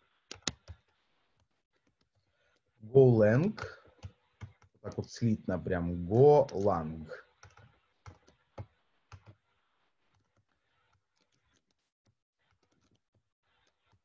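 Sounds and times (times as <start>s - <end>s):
computer keyboard typing: 0.3s - 0.8s, 3.9s - 5.0s, 7.4s - 9.4s.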